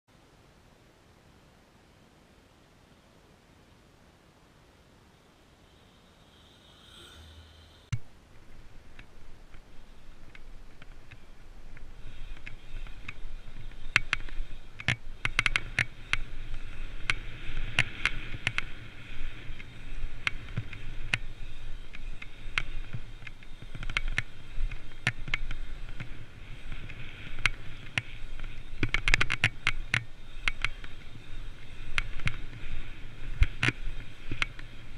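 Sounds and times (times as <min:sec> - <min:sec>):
wind: 0:00.1 - 0:34.9
bike tyre rumble on asphalt: 0:05.6 - 0:34.9
bike rattling clicks: 0:08.9 - 0:34.8.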